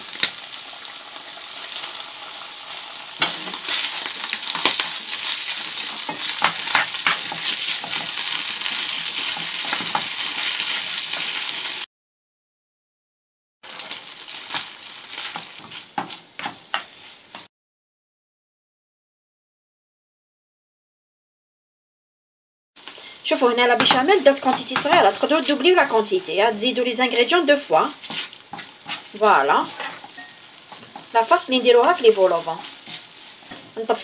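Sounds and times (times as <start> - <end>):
food sizzling in a frying pan: 0.0 - 11.9, 13.6 - 17.5, 22.8 - 34.0
wooden spatula scraping a pan: 3.2 - 11.5, 13.7 - 17.5, 27.2 - 34.0.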